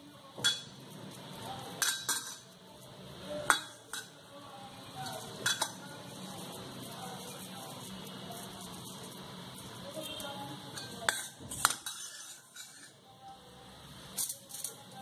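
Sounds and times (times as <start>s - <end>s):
metal spoon clinking in steel bowl: 0.4s - 0.8s, 1.6s - 2.6s, 3.4s - 4.2s, 5.0s - 5.9s, 10.7s - 13.0s, 14.1s - 15.0s.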